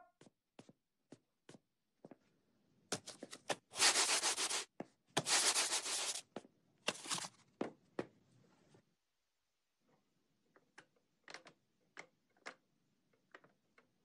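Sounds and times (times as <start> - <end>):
butter scraping on shoe soles: 3.0 - 6.2.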